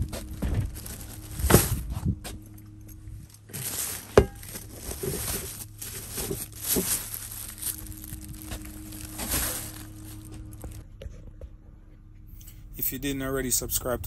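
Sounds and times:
plastic bags crinkling: 0.0s - 1.9s, 3.2s - 10.8s
rustling and handling clutter: 0.0s - 12.7s
faint steady hum: 0.0s - 14.0s.

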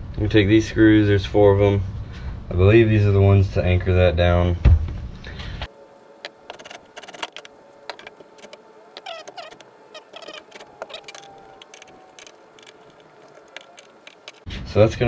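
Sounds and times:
short squeaks: 6.5s - 14.5s.

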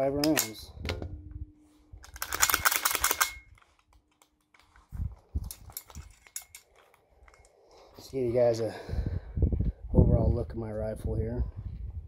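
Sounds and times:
rapid rifle shots: 2.2s - 3.4s.

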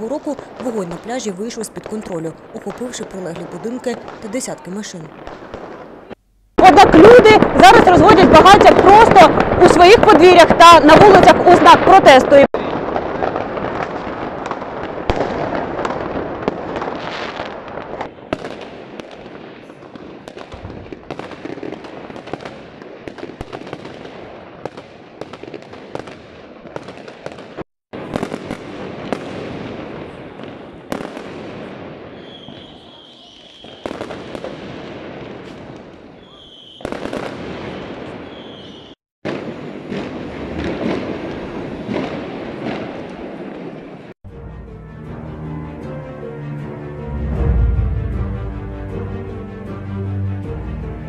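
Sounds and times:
fireworks and firecrackers bangs: 0.0s - 44.2s.

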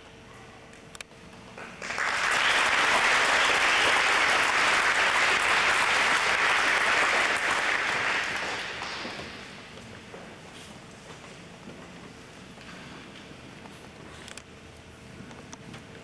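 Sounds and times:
audience applauding: 1.6s - 9.6s.

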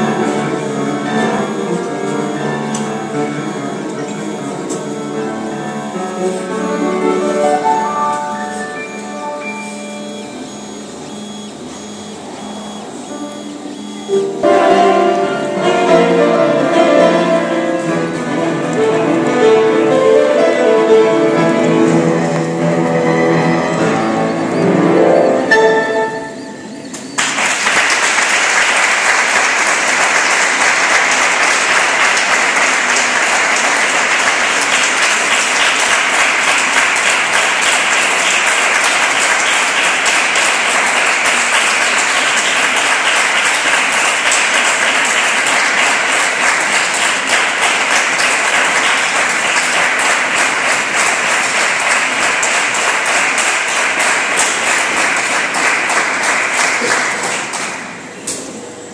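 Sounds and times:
crowd applauding: 0.0s - 58.6s.

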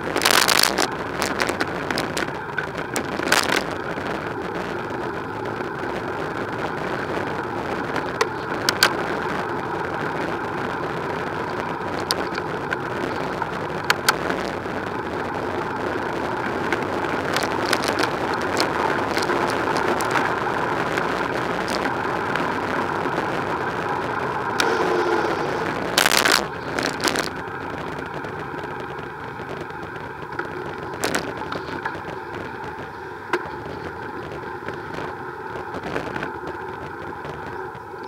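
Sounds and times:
bicycle tyre hum: 0.0s - 38.0s
sharp clicks: 24.6s - 27.3s.

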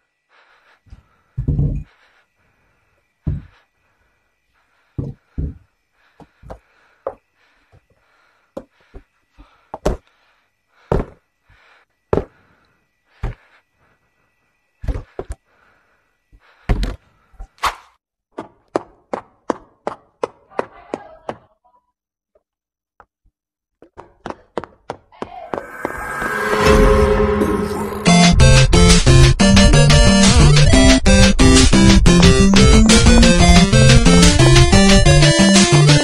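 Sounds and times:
faint high tone: 25.4s - 28.9s.

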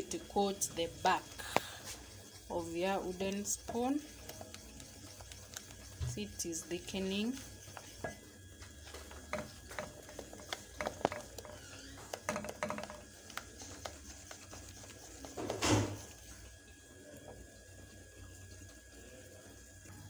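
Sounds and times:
wooden spoon scraping saucepan: 9.1s - 16.3s.

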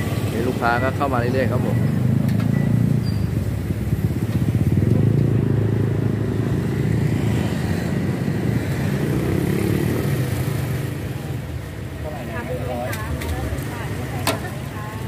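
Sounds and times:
motorcycle engine idling: 1.8s - 6.2s.

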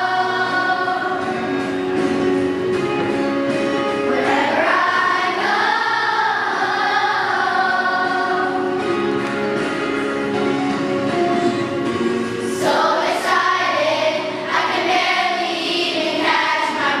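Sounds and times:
children's choir singing: 0.0s - 2.6s, 3.9s - 9.9s, 12.4s - 17.0s.

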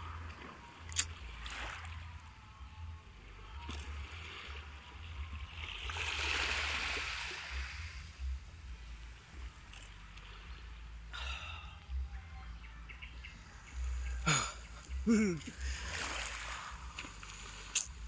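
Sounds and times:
low rumble: 0.0s - 18.0s
small waves washing on beach: 3.3s - 8.3s, 15.4s - 18.0s.

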